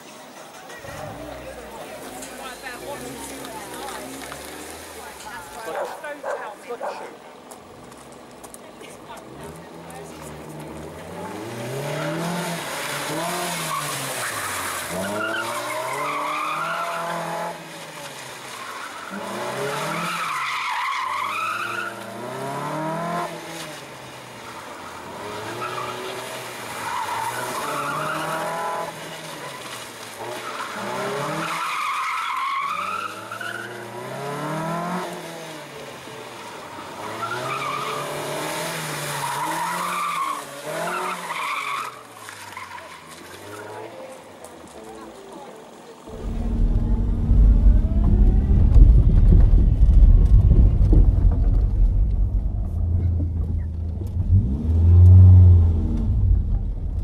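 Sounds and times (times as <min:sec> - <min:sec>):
car engine revving: 0:09.0 - 0:17.8, 0:46.1 - 0:57.0.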